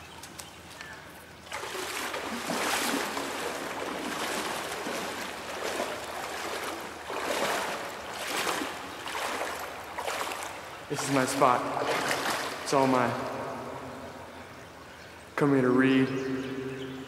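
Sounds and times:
water splashing and sloshing: 0:00.0 - 0:15.4.

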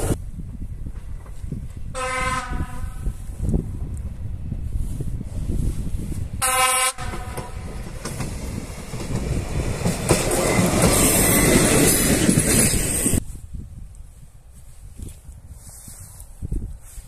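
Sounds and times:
train engine and wheels on rails: 0:00.0 - 0:13.3
train horn toot: 0:02.0 - 0:03.0, 0:06.4 - 0:07.6.

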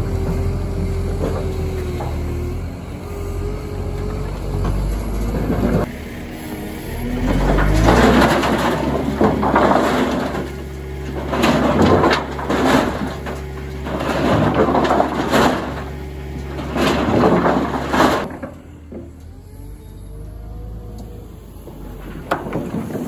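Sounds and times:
wheel loader engine running: 0:00.0 - 0:23.0
mesh drum tumbling wood: 0:07.2 - 0:19.1, 0:21.6 - 0:23.0.

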